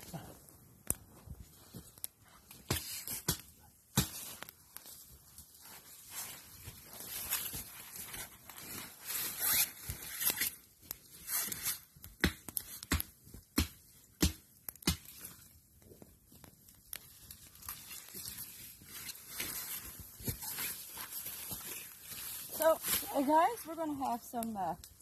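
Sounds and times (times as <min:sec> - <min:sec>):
campfire crackling and hissing: 0:00.0 - 0:25.0
sharp wood snaps: 0:11.6 - 0:15.3.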